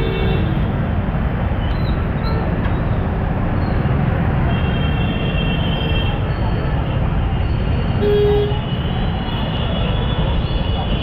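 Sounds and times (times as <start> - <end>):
road traffic rumble: 0.0 - 11.0
vehicle horns: 8.0 - 10.0.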